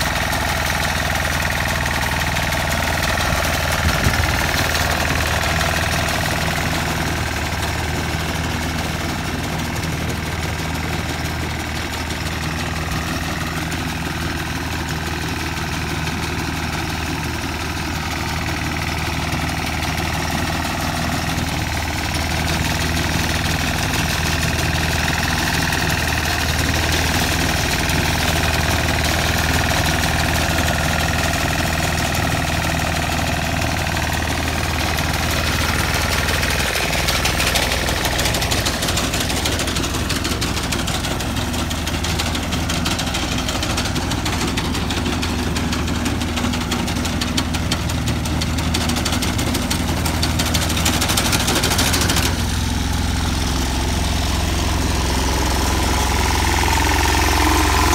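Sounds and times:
tractor engine running under load: 0.0s - 57.9s.

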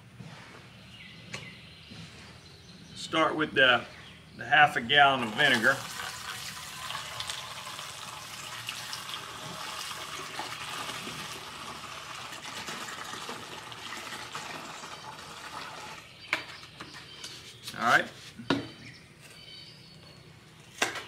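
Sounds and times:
liquid pouring into a tank: 5.1s - 16.1s.

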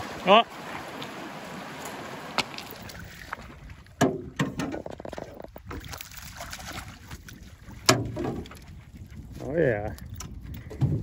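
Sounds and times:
river rushing over stones: 0.0s - 3.4s
water splashing beside boat: 0.0s - 9.4s
sharp knocks and clicks: 4.0s - 5.4s, 7.8s - 8.6s.

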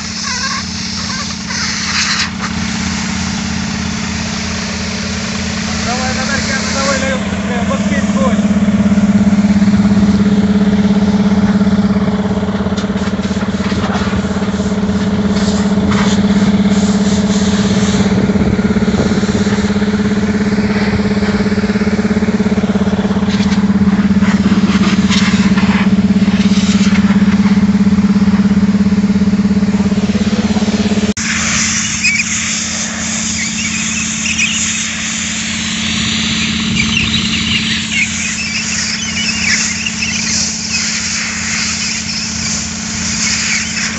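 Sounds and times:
compressed air hissing from hose: 0.0s - 7.9s, 12.9s - 18.2s, 18.9s - 19.8s, 23.4s - 27.2s, 31.2s - 43.9s
heavy engine idling: 0.0s - 43.9s.

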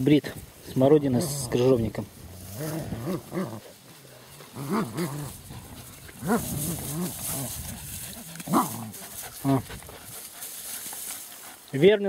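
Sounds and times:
dogs growling in play: 1.1s - 10.2s.

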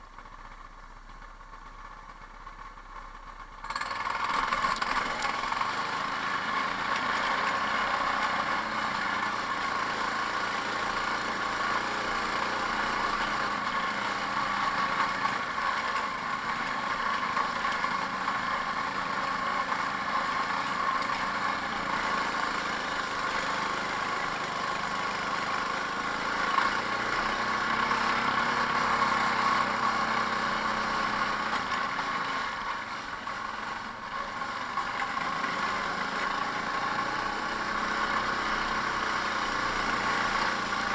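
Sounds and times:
go-kart engine running: 0.0s - 40.9s.

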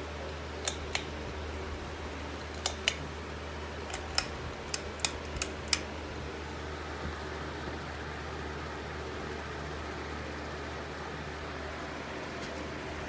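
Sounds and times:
ceiling fan motor hum: 0.0s - 13.0s
pull-chain switch clicking: 0.6s - 1.1s, 2.5s - 3.0s, 3.9s - 5.9s.

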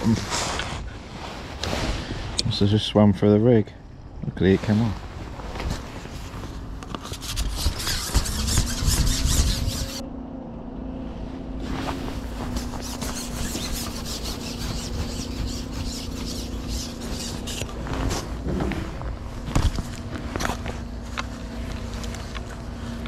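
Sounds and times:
excavator engine drone: 10.0s - 13.0s, 16.4s - 23.0s
handling rustles and clicks: 11.7s - 23.0s.

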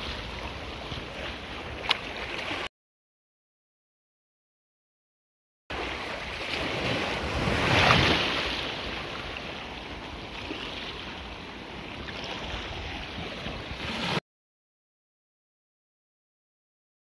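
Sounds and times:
sea surf breaking: 5.7s - 14.2s.

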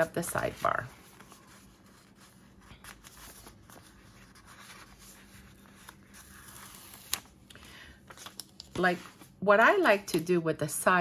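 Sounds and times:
paper rustling and scraping: 0.2s - 7.3s.

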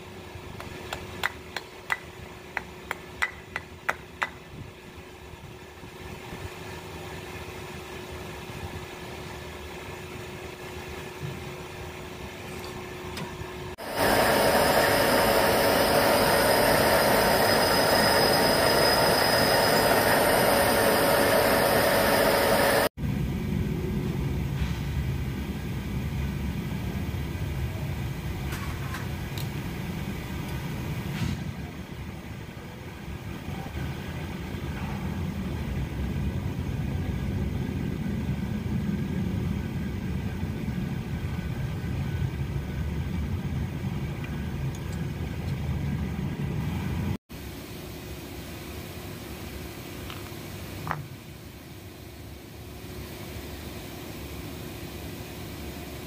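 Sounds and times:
steady hum: 0.0s - 28.4s
low machine noise: 0.0s - 56.0s
loud power tool running: 13.8s - 22.9s.

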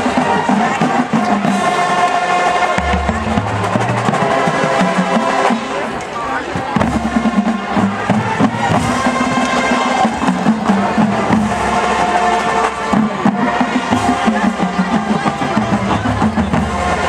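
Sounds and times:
marching band playing: 0.0s - 17.0s
bass drums steady beat: 2.8s - 4.8s.

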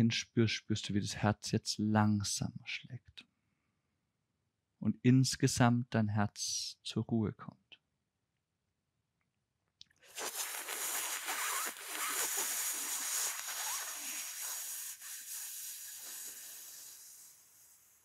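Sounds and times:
hissing in-breath through lips: 10.1s - 18.0s.

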